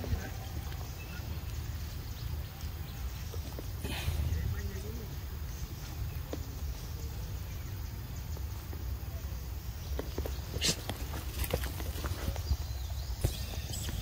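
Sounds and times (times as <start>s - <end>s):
low rumble: 3.8s - 6.8s.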